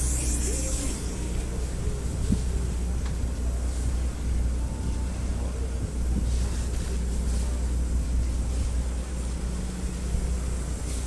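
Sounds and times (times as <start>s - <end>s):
water hissing: 0.0s - 1.5s
boat engine droning: 0.0s - 11.0s
wind: 0.0s - 11.0s.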